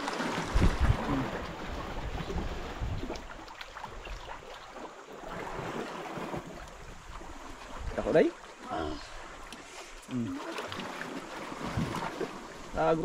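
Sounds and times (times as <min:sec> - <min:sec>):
water around a boat: 0:00.0 - 0:13.0
wind: 0:00.0 - 0:13.0.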